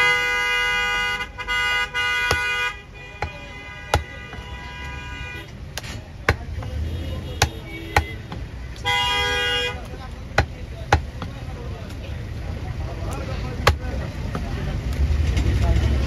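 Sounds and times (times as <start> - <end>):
horn tooting: 0.0 - 5.6, 6.6 - 9.9
cleaver chopping on wooden block: 2.2 - 4.6, 5.7 - 6.8, 7.4 - 8.6, 10.3 - 11.4, 13.6 - 14.4.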